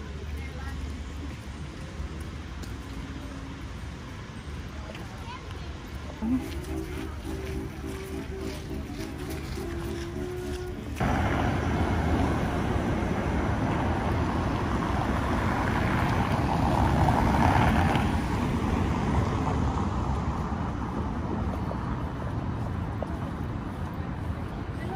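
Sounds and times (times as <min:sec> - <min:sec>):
street traffic road noise: 0:00.0 - 0:24.9
vehicle passing: 0:06.2 - 0:24.9.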